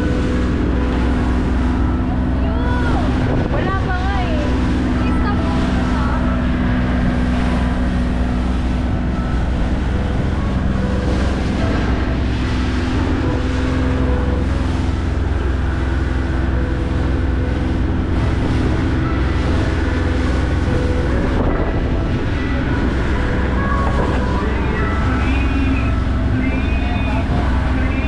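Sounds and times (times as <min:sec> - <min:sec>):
motorboat engine running: 0:00.0 - 0:28.0
wind on microphone: 0:00.0 - 0:28.0.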